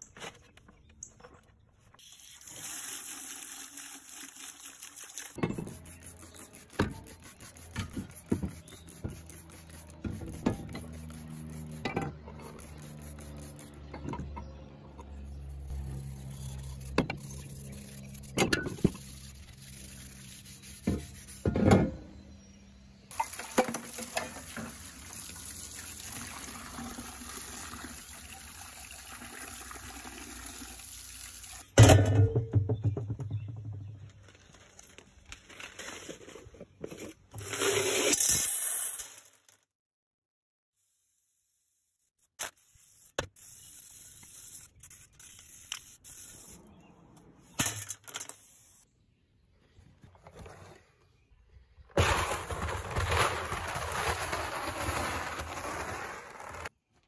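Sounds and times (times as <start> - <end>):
pressure washer spraying: 2.0 - 11.9
scrubbing shovel with pad: 4.4 - 13.8, 52.0 - 56.7
knocks and scrapes on metal: 20.6 - 22.1, 31.8 - 34.2.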